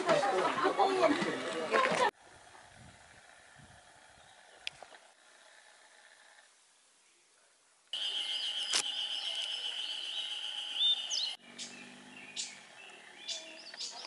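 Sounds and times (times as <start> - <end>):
birds chirping: 4.0 - 5.1, 7.9 - 14.0
high-pitched drone: 8.0 - 11.4.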